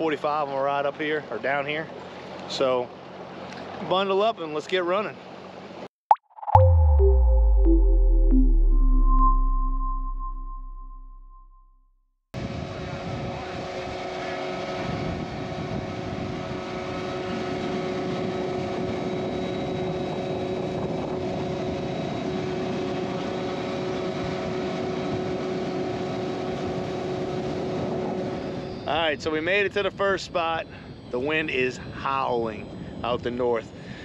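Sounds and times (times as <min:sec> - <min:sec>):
wind: 0:00.0 - 0:05.9, 0:12.4 - 0:34.0
outboard motor whine: 0:12.4 - 0:34.0.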